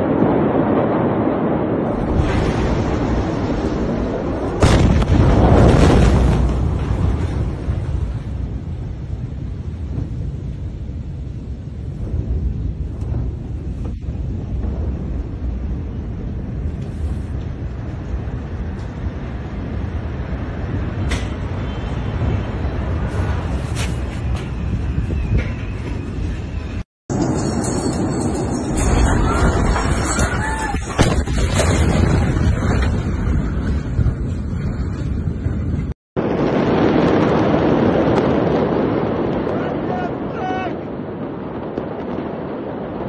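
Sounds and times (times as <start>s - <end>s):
steady low rumble: 0.0s - 30.0s
wind buffeting microphone: 0.0s - 43.0s.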